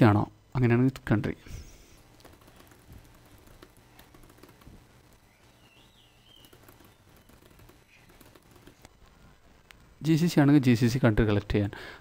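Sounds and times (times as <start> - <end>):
keyboard typing: 1.9 - 9.0.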